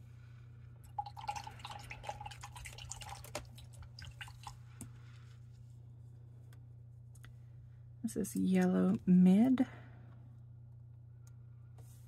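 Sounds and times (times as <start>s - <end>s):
water splashing and dripping: 1.0s - 4.6s.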